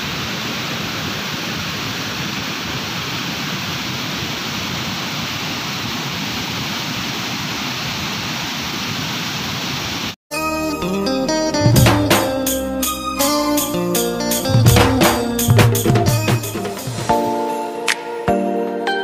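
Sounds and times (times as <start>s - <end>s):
stream rushing over rocks: 0.0s - 10.2s.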